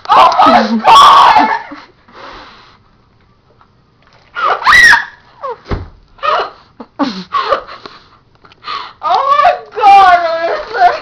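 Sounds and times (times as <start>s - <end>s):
girl shrieking and laughing: 0.1s - 1.8s, 4.4s - 5.6s, 6.2s - 6.6s.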